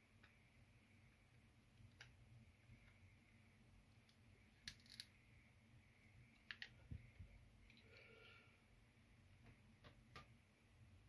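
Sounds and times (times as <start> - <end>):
faint room hum: 0.0 - 11.0
small plastic clicks: 4.0 - 5.2.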